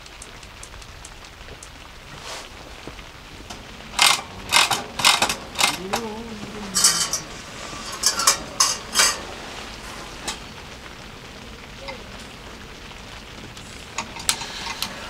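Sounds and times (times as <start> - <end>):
metallic clicks and rattles: 3.5 - 6.1, 6.8 - 9.3.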